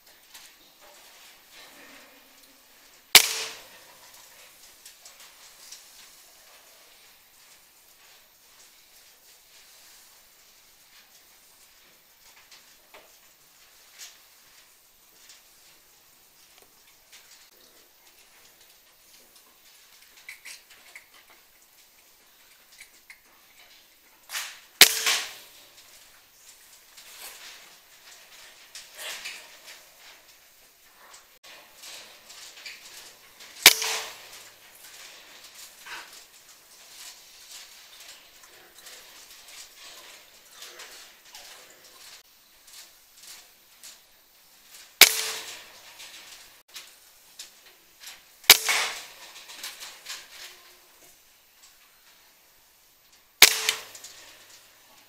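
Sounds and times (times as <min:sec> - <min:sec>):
air rifle shot: 0:03.2 - 0:03.7, 0:24.8 - 0:25.4, 0:33.6 - 0:34.3, 0:45.0 - 0:45.6, 0:48.5 - 0:49.1, 0:53.4 - 0:54.0.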